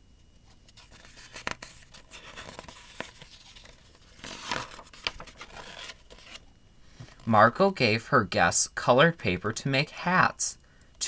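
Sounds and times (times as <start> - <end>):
paper pages rustling: 0.5 - 6.5.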